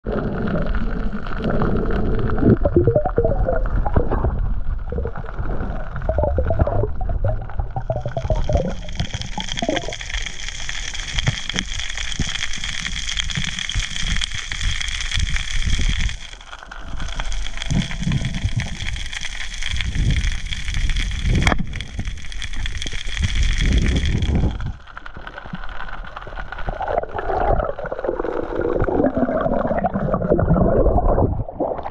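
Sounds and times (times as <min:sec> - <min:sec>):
water rushing and gurgling underwater: 0:00.0 - 0:31.9
low rumble: 0:00.1 - 0:10.1, 0:13.4 - 0:27.2.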